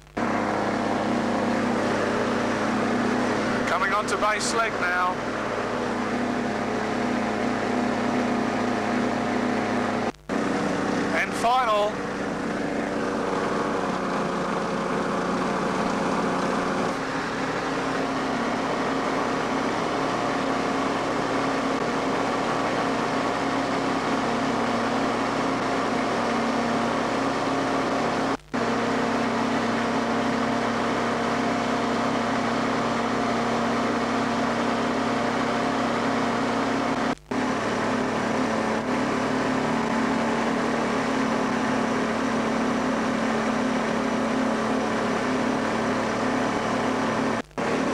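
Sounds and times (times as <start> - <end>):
two-stroke engine driving propeller: 0.0 - 47.9.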